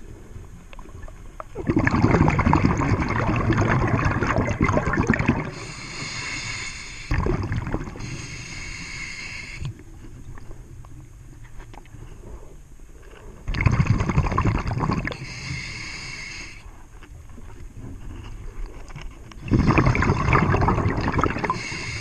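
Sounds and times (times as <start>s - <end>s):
exhaled bubbles rushing: 1.0s - 5.7s, 7.1s - 8.0s, 13.5s - 15.2s, 19.4s - 21.7s
regulator inhalation hiss: 5.5s - 7.2s, 8.0s - 9.7s, 15.2s - 16.7s, 21.4s - 22.0s.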